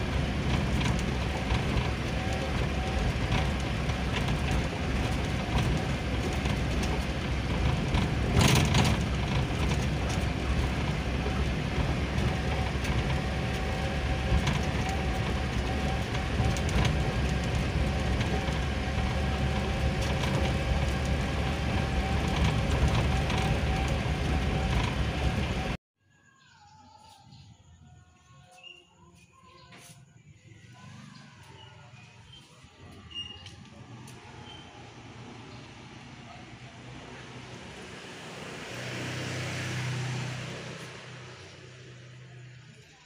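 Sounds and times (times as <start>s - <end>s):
cab rattles: 0.0s - 25.8s
engine and road noise: 0.0s - 25.8s, 28.3s - 43.0s.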